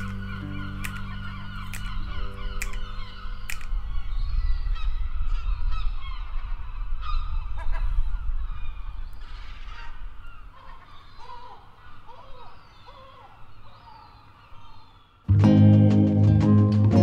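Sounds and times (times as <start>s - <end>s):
gulls calling: 0.0s - 15.3s.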